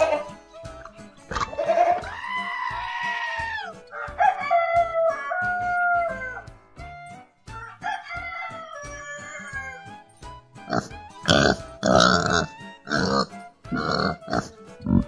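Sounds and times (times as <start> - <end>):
goat bleating: 0.0 - 0.4, 1.3 - 3.7, 10.7 - 15.0
background music with steady beat: 0.0 - 15.0
rooster crowing: 2.0 - 6.5, 7.6 - 9.9.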